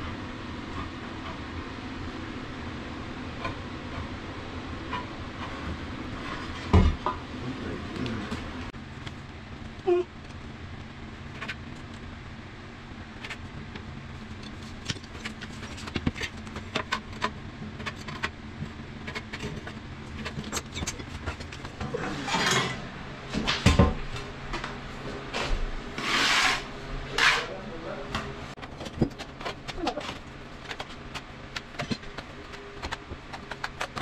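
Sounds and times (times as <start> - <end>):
low steady hum: 0.0 - 34.0
trowel scraping tile adhesive: 26.0 - 27.5.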